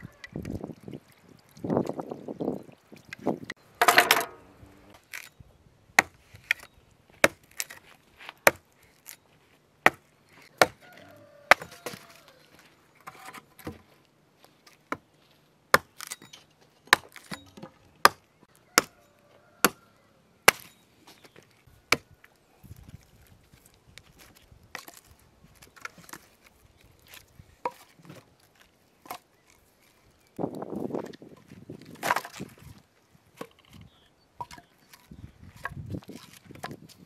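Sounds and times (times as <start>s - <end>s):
hatchet chopping branches: 6.0s - 9.2s, 9.8s - 10.8s, 11.4s - 12.1s, 15.7s - 16.3s, 16.9s - 19.0s, 20.4s - 20.8s.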